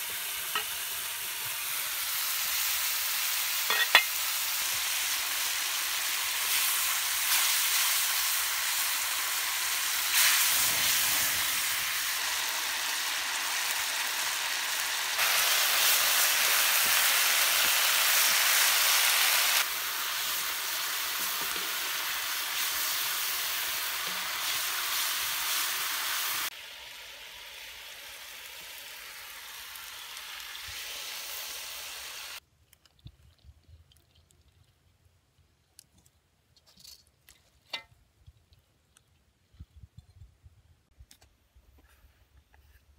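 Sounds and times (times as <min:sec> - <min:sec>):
meat sizzling in a wok: 0:00.0 - 0:32.4.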